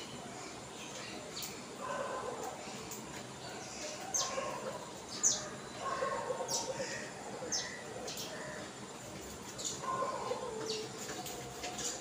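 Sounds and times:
sparrows chirping: 0:00.0 - 0:12.0.

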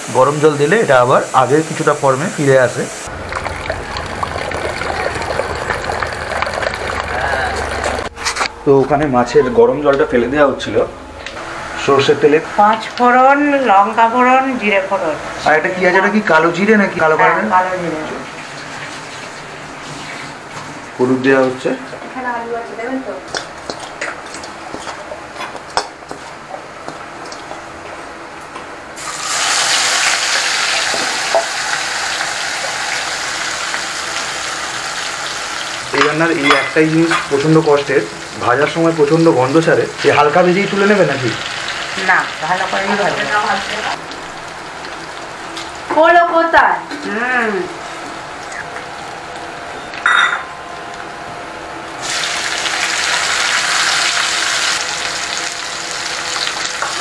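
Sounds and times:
food sizzling in hot oil: 0:00.0 - 0:08.1, 0:29.0 - 0:49.3, 0:52.0 - 0:57.0.

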